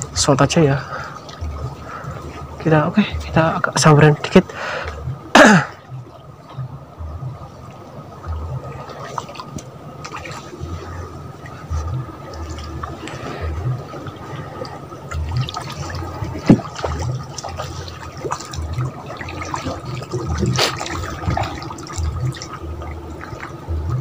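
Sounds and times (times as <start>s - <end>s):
water sloshing around boat: 0.0s - 24.0s
sharp knock on boat: 15.2s - 17.2s.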